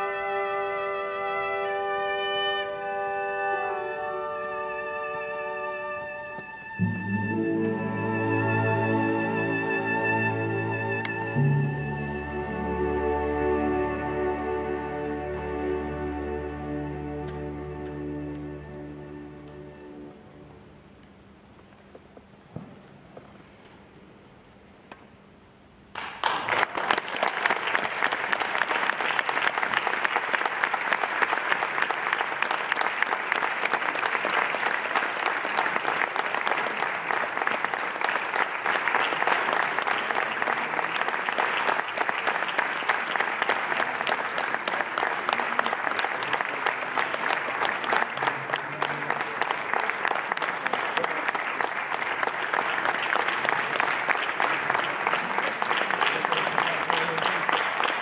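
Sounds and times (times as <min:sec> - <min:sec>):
audience applauding: 0:25.9 - 0:58.0.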